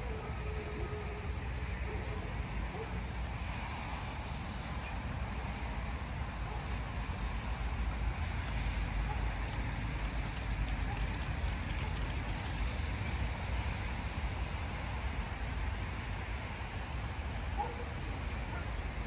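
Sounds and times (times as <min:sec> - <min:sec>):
distant traffic rumble: 0:00.0 - 0:19.0.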